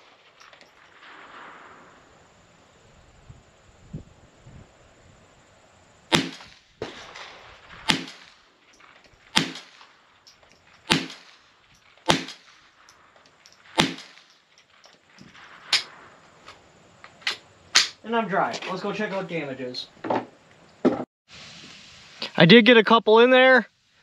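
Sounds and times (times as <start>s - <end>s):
rifle shots with echo: 6.1s - 8.5s, 9.3s - 10.0s, 10.9s - 12.7s, 13.6s - 14.3s.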